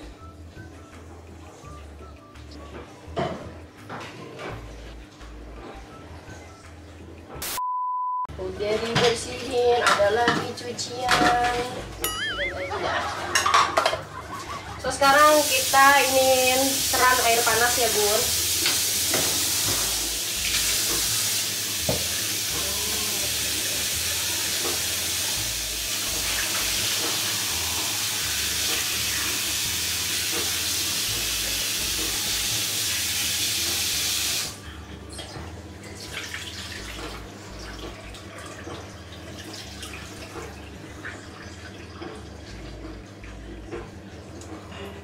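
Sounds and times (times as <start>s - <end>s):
bowl clinks: 12.0s - 13.8s
tap water splashing into sink: 21.8s - 22.6s.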